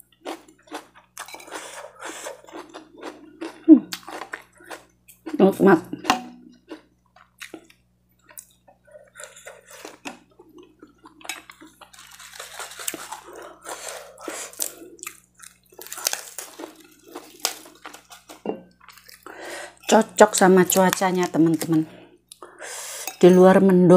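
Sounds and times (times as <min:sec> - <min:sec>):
lettuce leaf rustling: 0:11.9 - 0:14.8, 0:15.8 - 0:18.4.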